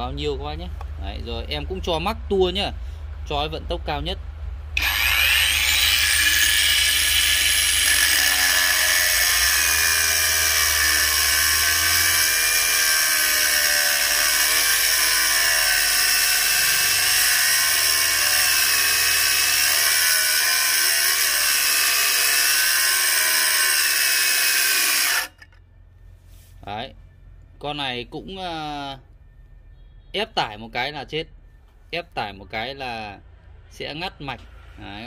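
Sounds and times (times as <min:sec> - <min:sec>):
angle grinder cutting steel: 0:04.8 - 0:25.6.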